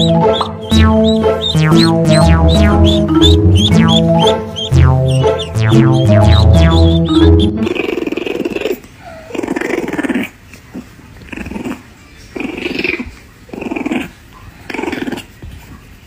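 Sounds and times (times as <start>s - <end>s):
puppy growling: 7.2s - 15.4s.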